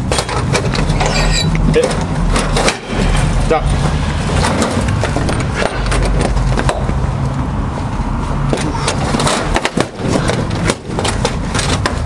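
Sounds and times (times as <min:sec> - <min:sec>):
metal tools clanking on padlock: 0:00.0 - 0:02.9.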